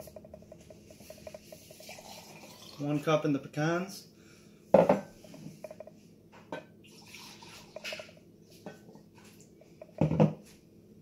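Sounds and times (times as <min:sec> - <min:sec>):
liquid trickling into glass: 0:00.9 - 0:03.0, 0:06.9 - 0:08.2
glass knock: 0:04.8 - 0:05.1, 0:09.8 - 0:10.4.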